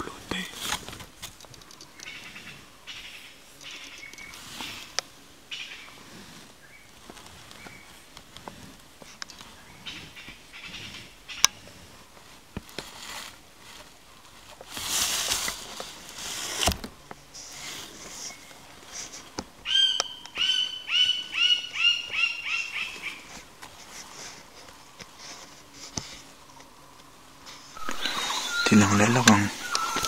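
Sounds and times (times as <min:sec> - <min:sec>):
bird calling short clear notes: 0:27.8 - 0:30.0.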